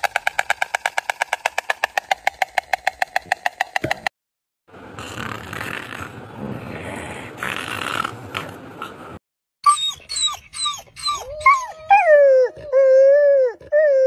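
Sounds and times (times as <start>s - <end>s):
hyena yelping and whining: 9.6s - 14.0s.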